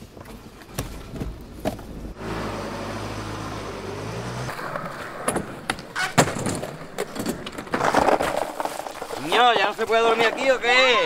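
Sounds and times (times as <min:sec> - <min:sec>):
skateboards clacking on concrete: 0:04.6 - 0:11.0.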